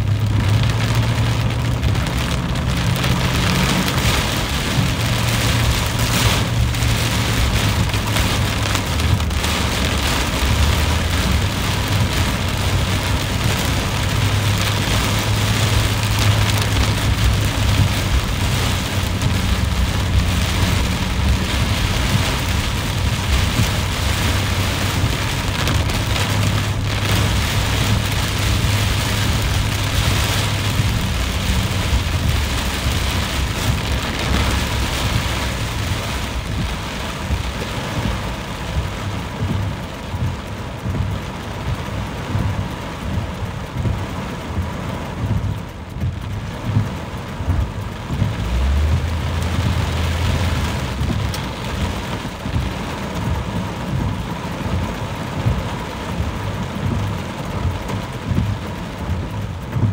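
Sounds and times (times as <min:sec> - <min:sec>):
car engine and wet tyres rumble: 0:00.0 - 0:59.9
heavy rain on car windshield: 0:00.0 - 0:59.9.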